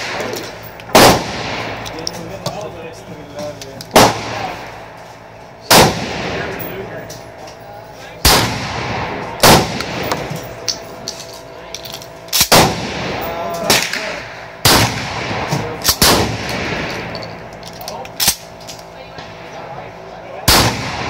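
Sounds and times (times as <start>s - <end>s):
shotgun shots echoing: 0.0s - 1.9s, 3.9s - 4.8s, 5.7s - 6.6s, 8.2s - 10.5s, 12.4s - 17.1s, 20.4s - 21.0s.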